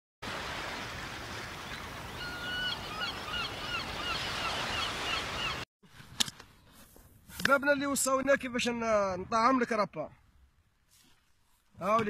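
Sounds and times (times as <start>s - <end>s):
surf washing onto beach: 0.2s - 2.5s.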